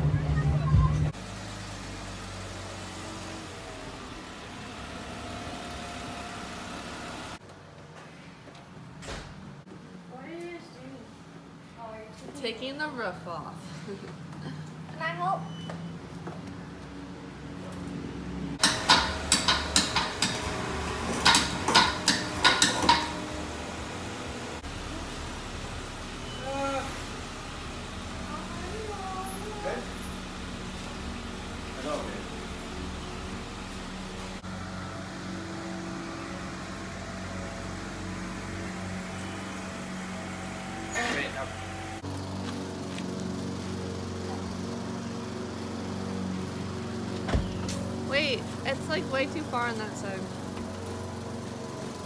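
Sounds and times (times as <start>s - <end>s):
sharp irregular clicks and knocks: 18.6s - 20.5s, 21.2s - 23.2s
car engine idling: 18.6s - 52.0s.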